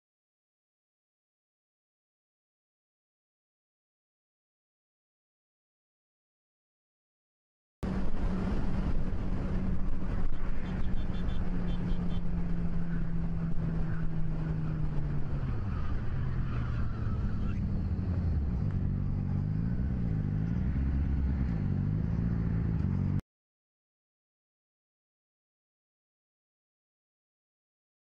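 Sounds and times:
motorcycle engine revving: 7.9 - 23.2.

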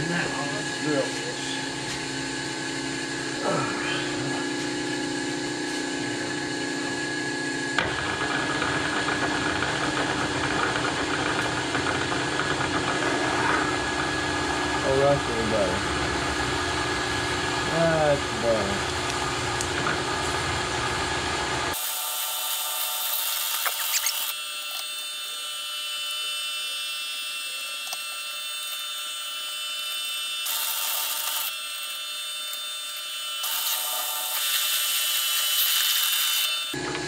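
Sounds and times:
hissing metal cutting: 0.0 - 2.4, 21.7 - 36.8
drill press whine: 0.0 - 37.0.

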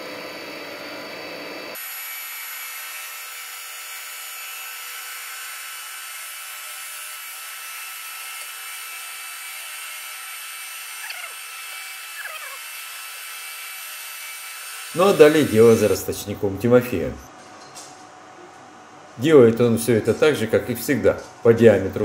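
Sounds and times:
milling machine cutter running: 0.1 - 16.1.

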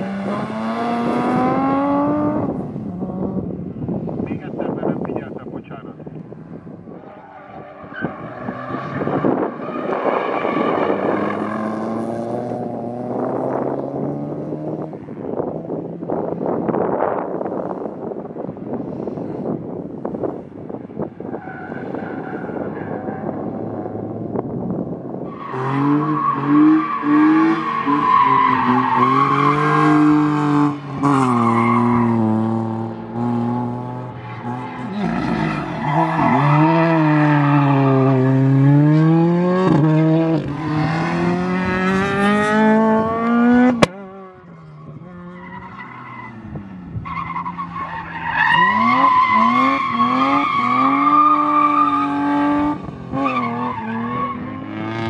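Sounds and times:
rally car engines revving: 0.0 - 55.0.

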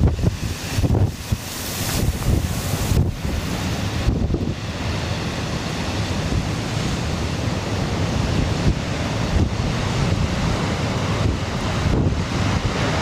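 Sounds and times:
surf breaking over rocks: 0.0 - 13.0
wind buffeting microphone: 0.0 - 13.0.

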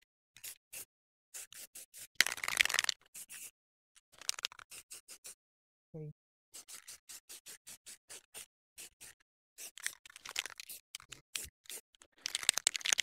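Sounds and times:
spray paint can rattling: 2.2 - 3.5, 4.1 - 4.7, 9.6 - 13.0.

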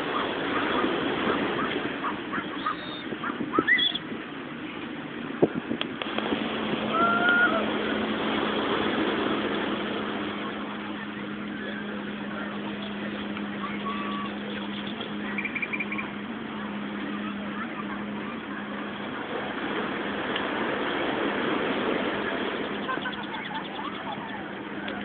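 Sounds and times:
distant cries: 0.0 - 4.0, 6.9 - 7.8, 10.7 - 18.6, 22.2 - 25.0
low motor hum: 0.0 - 25.0
surf washing in: 0.0 - 25.0.

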